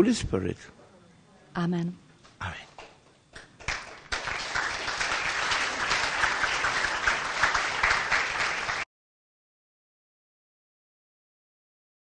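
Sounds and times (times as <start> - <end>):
audience applauding: 3.4 - 8.9.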